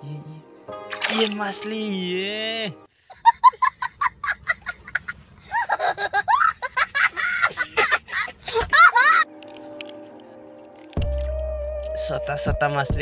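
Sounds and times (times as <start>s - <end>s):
small child laughing hysterically: 3.1s - 9.3s.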